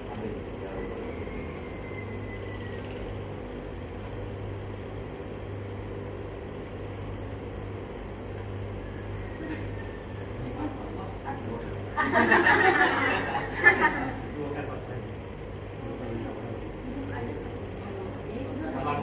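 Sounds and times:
low mechanical hum: 0.0s - 19.0s
room noise: 0.0s - 19.0s.

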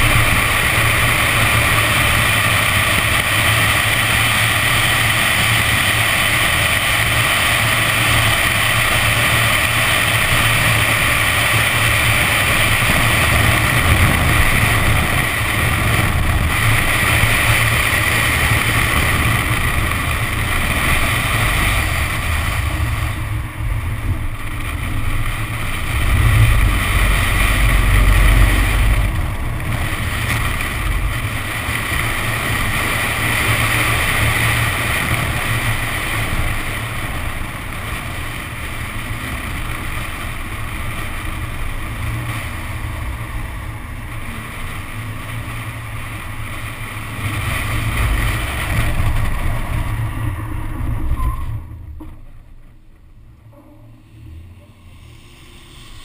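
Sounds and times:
car engine running: 0.0s - 56.0s
deep rumble: 0.0s - 56.0s
wind buffeting microphone: 11.1s - 39.2s.

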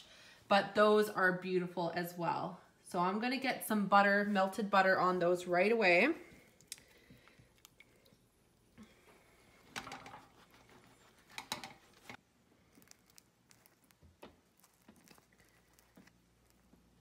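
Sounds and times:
scratchy rustles: 10.1s - 17.0s.

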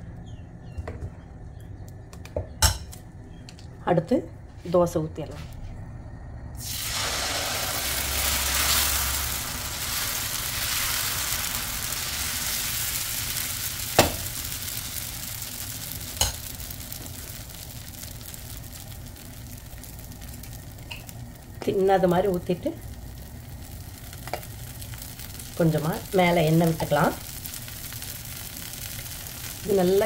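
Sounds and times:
batter sizzling on hot pan: 6.6s - 30.0s.

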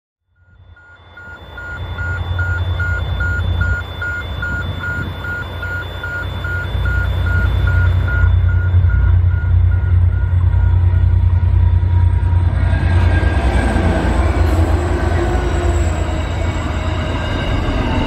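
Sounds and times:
electronic warning beeps: 0.3s - 13.0s
diesel locomotive engines rumbling: 0.4s - 18.0s.

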